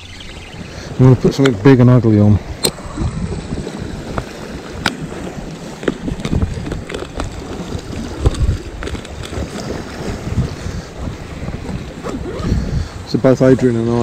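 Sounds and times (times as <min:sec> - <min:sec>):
wind buffeting microphone: 0:00.0 - 0:14.0
water lapping over rocks: 0:02.4 - 0:13.0.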